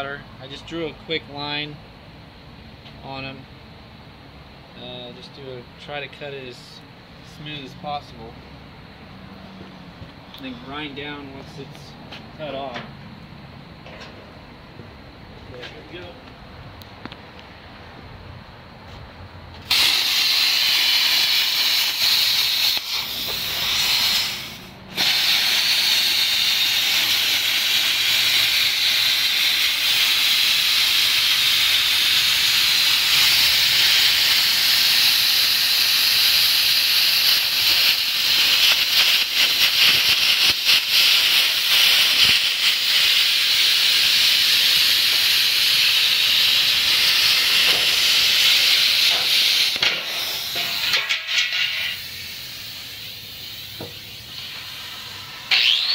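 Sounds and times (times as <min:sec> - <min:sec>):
plasma cutter hissing: 0:19.6 - 0:55.9.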